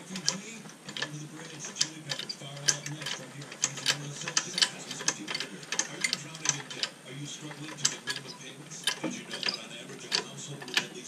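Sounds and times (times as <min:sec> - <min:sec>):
ratchet wrench clicking: 0:00.2 - 0:06.9.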